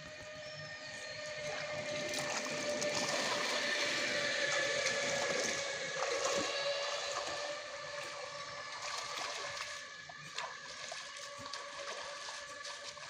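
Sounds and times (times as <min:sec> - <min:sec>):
pond water sloshing and splashing: 0:00.0 - 0:13.0
sharp splashes: 0:01.4 - 0:13.0.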